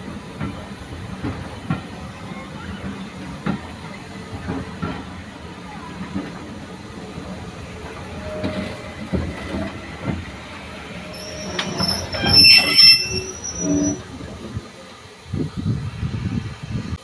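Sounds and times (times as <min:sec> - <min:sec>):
rumble of slow train: 0:00.0 - 0:17.0
train wheels squealing on rails: 0:07.8 - 0:14.1.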